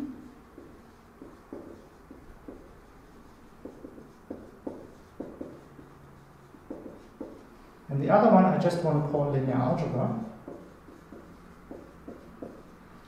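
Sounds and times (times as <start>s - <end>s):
pen writing strokes and taps: 0.5s - 5.9s, 6.5s - 7.5s, 10.4s - 12.7s.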